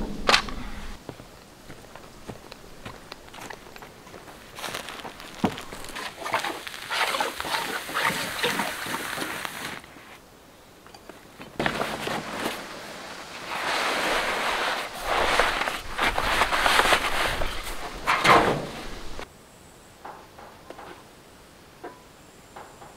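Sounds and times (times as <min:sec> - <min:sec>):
plastic sheeting rustling: 0:04.4 - 0:10.2, 0:11.6 - 0:19.2.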